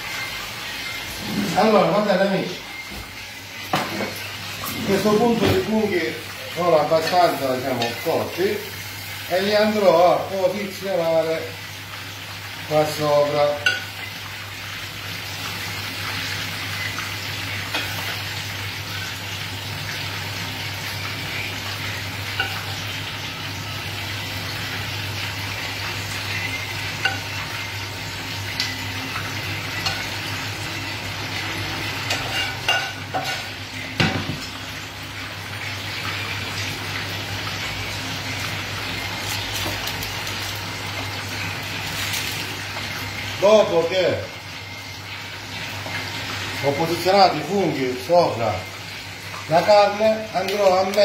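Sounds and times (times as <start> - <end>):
oil sizzling in a frying pan: 0.0 - 51.0
spoon scraping a pan: 32.0 - 33.6.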